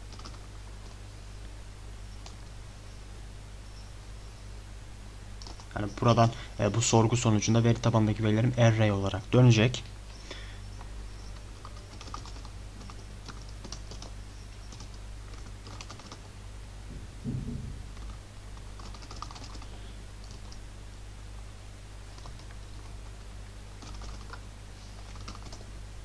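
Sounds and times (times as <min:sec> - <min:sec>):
computer keyboard typing: 0:00.0 - 0:00.5, 0:05.4 - 0:05.8, 0:11.3 - 0:16.3, 0:17.9 - 0:20.6, 0:22.1 - 0:23.0, 0:23.8 - 0:24.4, 0:25.0 - 0:25.7
low electrical hum: 0:00.0 - 0:26.0
low thump: 0:16.9 - 0:18.2.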